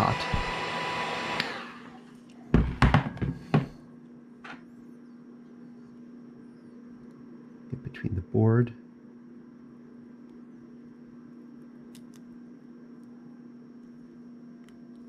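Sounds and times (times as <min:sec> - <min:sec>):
heat gun blowing: 0:00.0 - 0:02.0
knocks: 0:02.5 - 0:03.8.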